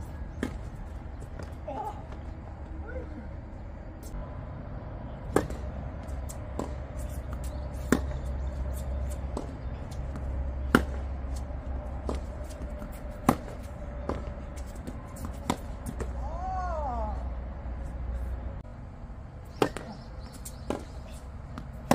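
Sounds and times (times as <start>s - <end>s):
steady low hum: 0.0s - 21.9s
racket hitting tennis ball: 0.3s - 1.6s, 5.2s - 16.2s, 19.5s - 21.9s
ball bouncing on court: 5.3s - 8.3s.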